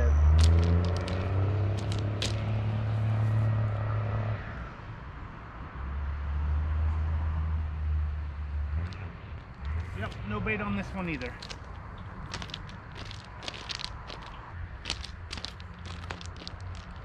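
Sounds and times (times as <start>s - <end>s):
footsteps on gravel: 0.4s - 2.5s, 9.4s - 17.0s.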